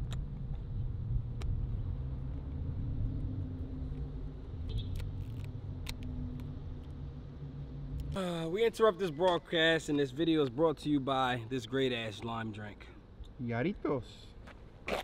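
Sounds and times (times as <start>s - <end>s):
low vehicle rumble: 0.0s - 8.2s.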